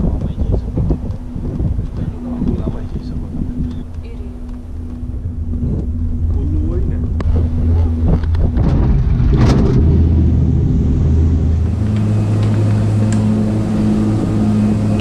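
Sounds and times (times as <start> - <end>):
cableway machinery humming: 0.0 - 15.0
clunks and rattles: 7.0 - 13.2.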